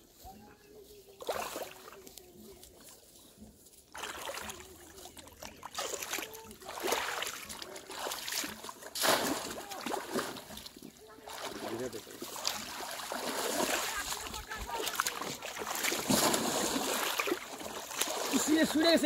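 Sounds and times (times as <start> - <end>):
splashing steps in river water: 1.2 - 2.2, 3.9 - 19.0.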